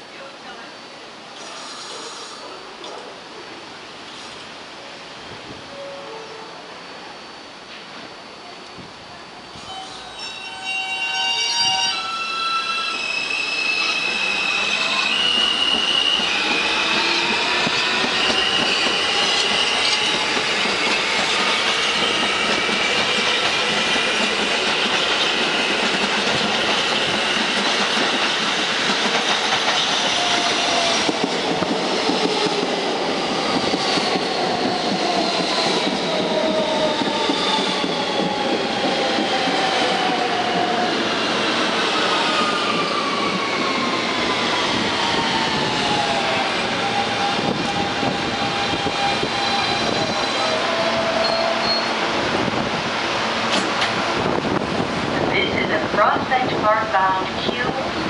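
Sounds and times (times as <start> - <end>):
train braking to a stop: 1.3 - 2.7, 5.5 - 52.6
wheels rumbling on rail: 44.7 - 58.0.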